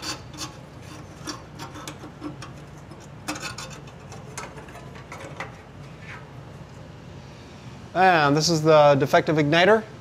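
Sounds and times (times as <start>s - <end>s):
small metallic clicks and scrapes: 0.0s - 6.2s
low steady hum: 0.0s - 10.0s.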